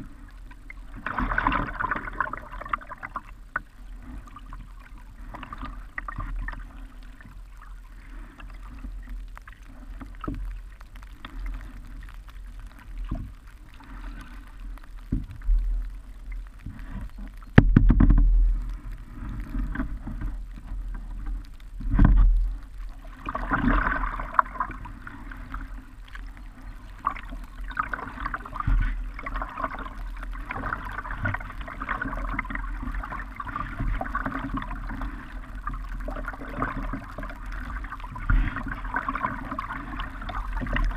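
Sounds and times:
paddle strokes: 0:00.0 - 0:40.9
rush of moving water: 0:00.0 - 0:40.9
water splashing and dripping: 0:00.0 - 0:40.9
thumps on boat: 0:17.5 - 0:18.4.

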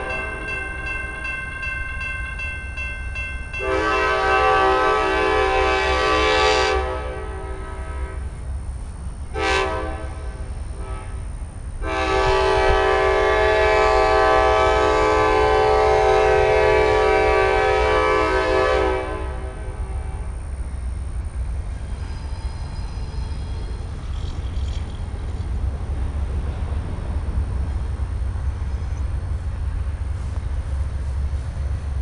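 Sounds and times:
low train rumble: 0:00.0 - 0:32.0
train air horn blasts: 0:03.6 - 0:08.4, 0:09.3 - 0:20.4.

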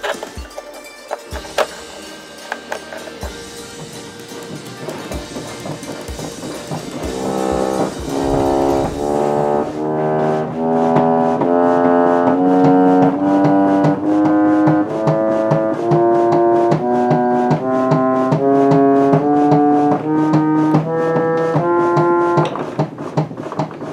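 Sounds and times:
reed organ chords: 0:05.3 - 0:22.4.

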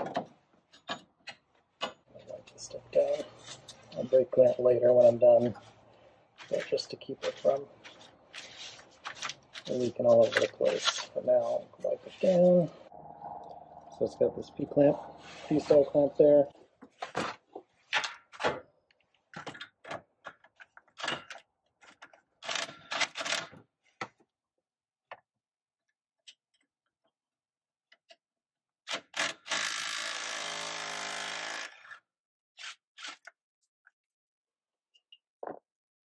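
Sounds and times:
cordless drill running: 0:29.2 - 0:31.9.

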